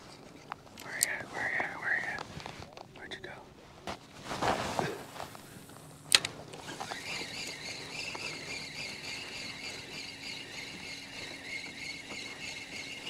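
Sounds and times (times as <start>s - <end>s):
faint low hum: 0.0s - 13.0s
high-pitched motor whine: 5.4s - 13.0s
sharp click: 6.1s - 6.6s.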